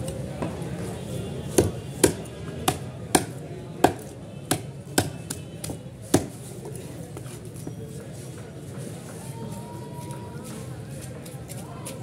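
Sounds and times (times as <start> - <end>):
knocks on wooden chopping block: 1.6 - 5.2.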